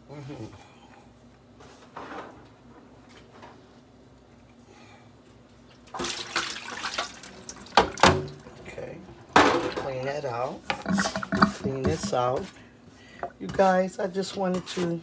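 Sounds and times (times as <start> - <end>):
water splashing into steel sink: 5.9 - 8.6.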